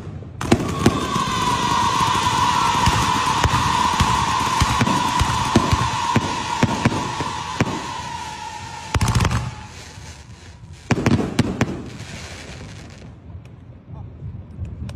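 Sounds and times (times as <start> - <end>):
firework bangs: 0.0 - 13.4
firework cracks: 0.0 - 13.5
firework whistle: 0.4 - 13.0.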